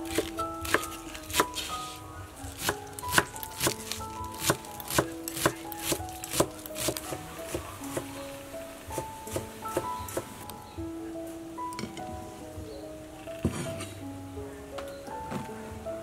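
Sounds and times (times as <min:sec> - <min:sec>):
soft background music: 0:00.0 - 0:16.0
knife chopping on wooden board: 0:02.5 - 0:08.1.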